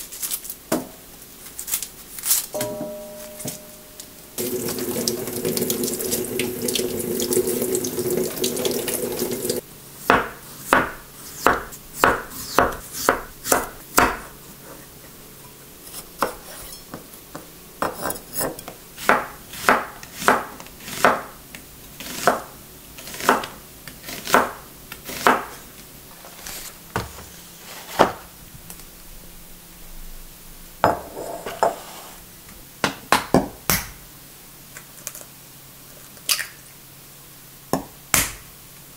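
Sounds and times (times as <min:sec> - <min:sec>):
tap water running: 0:04.4 - 0:09.6.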